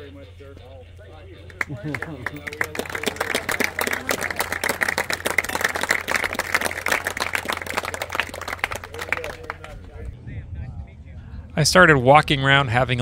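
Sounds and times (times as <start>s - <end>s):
people applauding: 1.5s - 10.2s.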